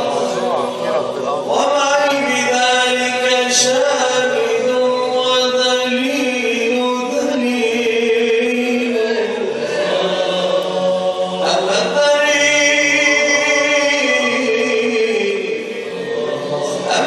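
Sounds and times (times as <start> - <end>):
men chanting devotional song: 0.0 - 17.0.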